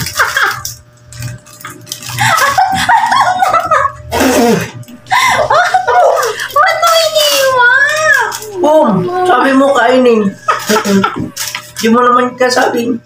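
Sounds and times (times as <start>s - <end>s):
people laughing and calling out: 2.2s - 9.5s.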